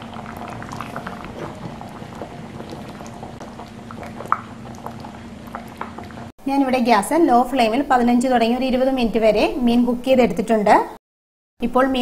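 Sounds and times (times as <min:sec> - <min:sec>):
curry bubbling and popping: 0:00.0 - 0:06.4
faint steady hum: 0:00.0 - 0:10.4.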